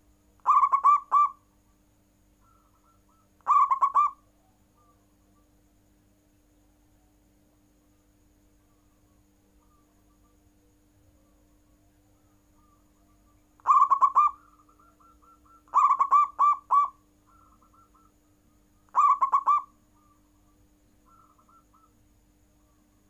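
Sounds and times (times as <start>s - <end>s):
faint steady hum: 0.0s - 23.0s
dove cooing: 0.4s - 1.4s, 2.4s - 5.0s, 12.6s - 18.1s, 18.9s - 20.2s, 21.1s - 22.0s.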